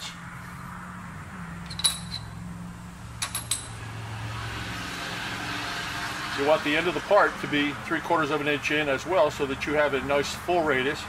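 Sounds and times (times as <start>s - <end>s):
steady low hum: 0.0s - 11.0s
steel parts clinking against vise: 1.6s - 2.4s, 3.2s - 3.8s.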